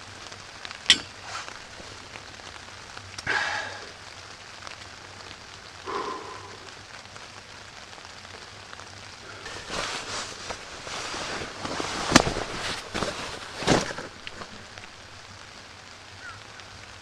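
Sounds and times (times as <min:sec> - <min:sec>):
light rain on a tarp: 0:00.0 - 0:17.0
jacket fabric rustling: 0:00.9 - 0:02.2, 0:09.4 - 0:15.2.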